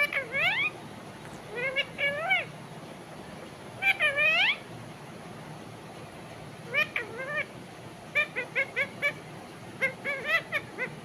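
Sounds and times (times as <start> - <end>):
parakeet calling: 0.0 - 2.6, 3.8 - 4.7, 6.6 - 11.0.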